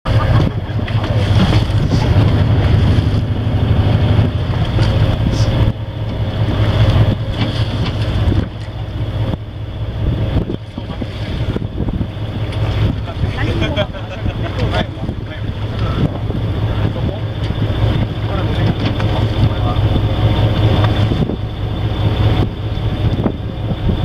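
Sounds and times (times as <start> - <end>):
boat engine hum: 0.0 - 24.0
wind buffeting microphone: 0.1 - 24.0.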